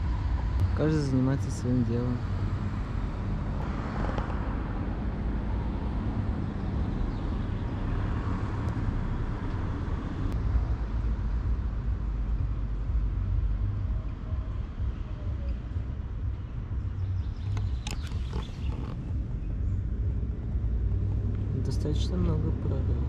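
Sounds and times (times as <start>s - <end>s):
low outdoor rumble: 0.0s - 23.0s.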